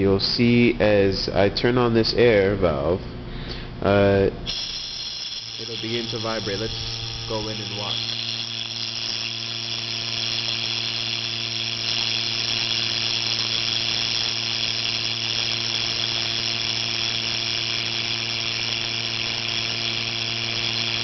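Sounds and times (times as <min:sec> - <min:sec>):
steady buzzing tone: 0:04.1 - 0:21.0.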